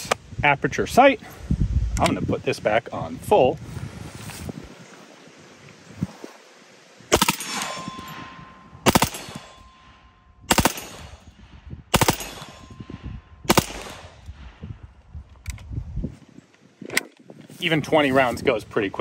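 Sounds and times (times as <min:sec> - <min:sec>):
gunshot echo: 0:07.1 - 0:09.9, 0:10.5 - 0:11.3, 0:11.9 - 0:14.2
submachine gun bursts: 0:08.9 - 0:09.4, 0:10.5 - 0:11.0, 0:13.5 - 0:14.0.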